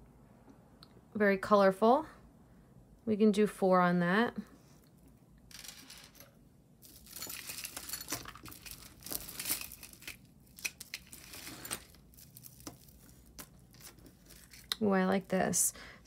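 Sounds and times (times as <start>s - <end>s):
bag crinkling: 6.8s - 14.8s.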